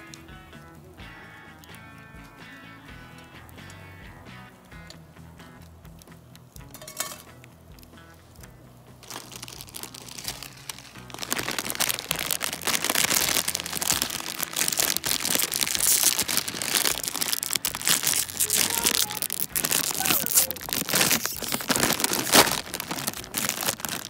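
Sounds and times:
light background music: 0.0s - 24.0s
plastic bag crinkling: 6.7s - 7.3s, 9.0s - 24.0s.

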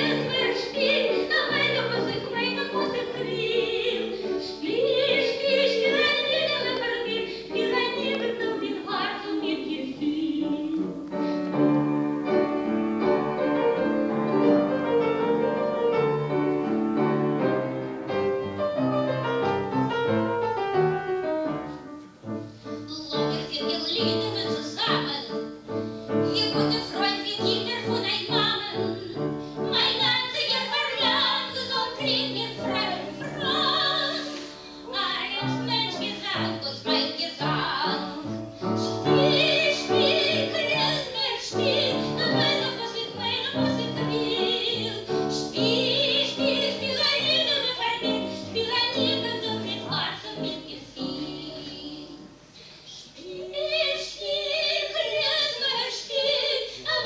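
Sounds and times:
instrumental accompaniment: 10.0s - 28.0s.

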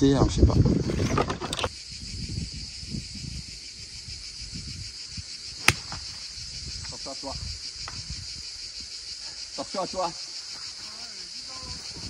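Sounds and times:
insects chirring: 0.1s - 12.0s
golf club striking ball: 5.6s - 6.0s.

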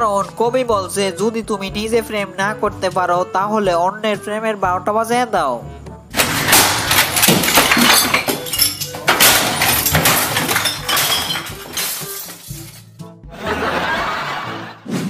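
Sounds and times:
glass breaking: 6.2s - 12.9s
objects crashing and smashing: 6.2s - 12.9s.

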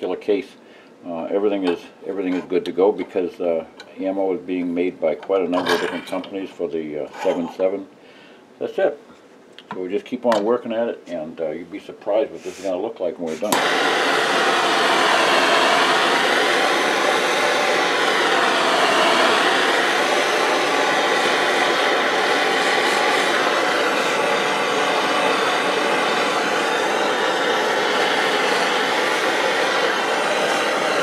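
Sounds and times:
blowtorch flame hissing: 13.4s - 31.0s.

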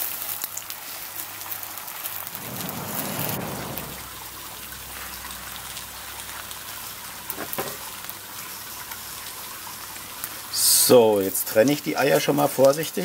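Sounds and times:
eggs sizzling on a griddle: 0.0s - 2.2s, 4.8s - 13.0s.

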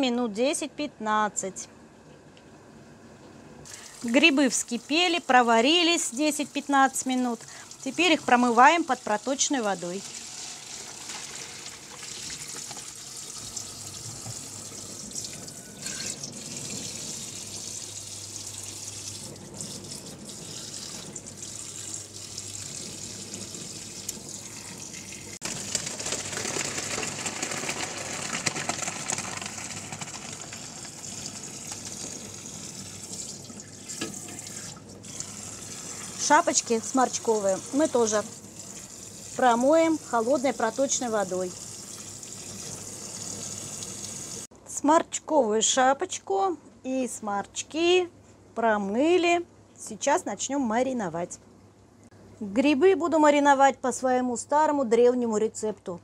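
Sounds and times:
tap water running into a colander: 3.7s - 44.5s.

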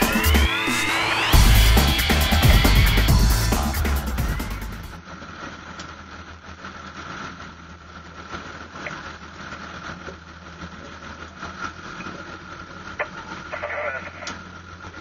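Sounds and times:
thin high whine: 0.0s - 7.5s
boat engine running low: 1.0s - 15.0s.

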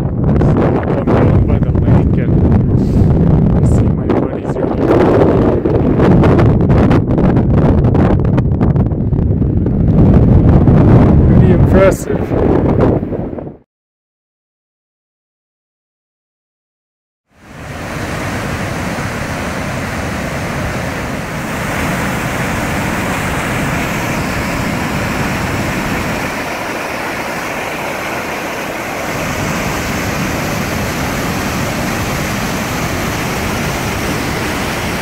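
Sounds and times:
waterfall rushing: 17.4s - 35.0s.

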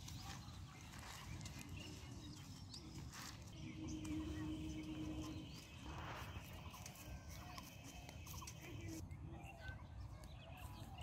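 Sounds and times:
plants rustling: 0.0s - 9.0s
birds chirping: 0.0s - 11.0s
steady low hum: 0.7s - 9.2s.

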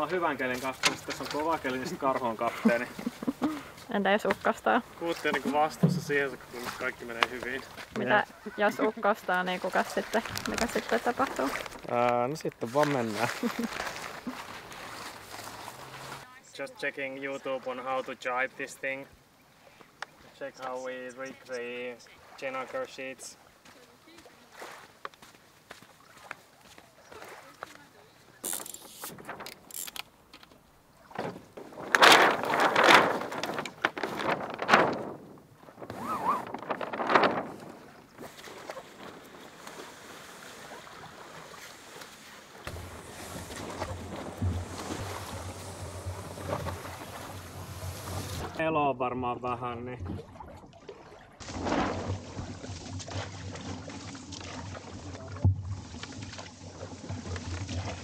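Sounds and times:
paddle splashing in water: 0.0s - 16.3s, 18.0s - 48.6s, 50.0s - 58.0s
sail rustling and crackling: 0.0s - 16.3s, 28.3s - 48.6s, 51.4s - 58.0s
rigging clicks: 28.4s - 30.6s.

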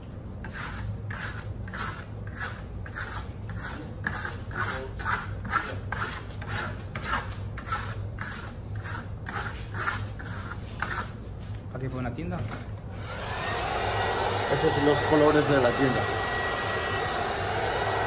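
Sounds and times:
trowel scraping plaster: 0.4s - 11.2s.

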